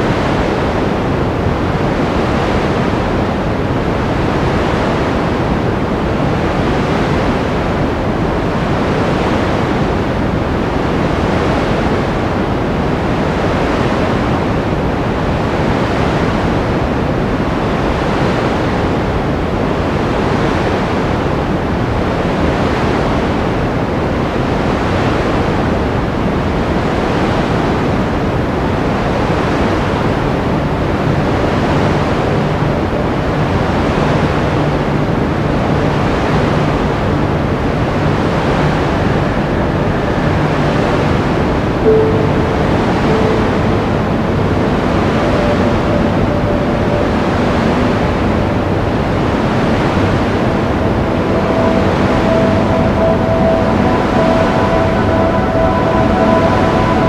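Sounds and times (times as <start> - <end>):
low steady hum: 30.1 - 57.0.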